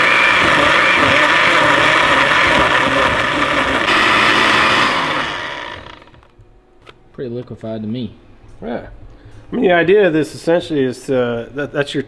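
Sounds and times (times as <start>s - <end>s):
blender whirring: 0.0s - 6.3s.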